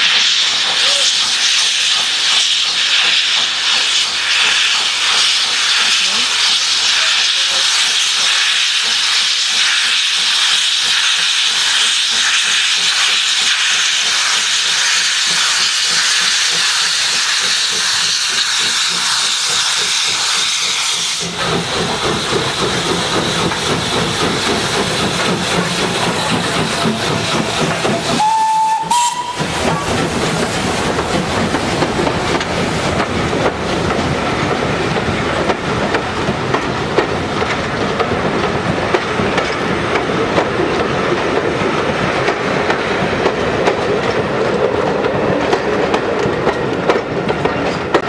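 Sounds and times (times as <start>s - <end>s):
steam hiss: 0.0s - 40.3s
short steam whistle: 28.0s - 29.9s.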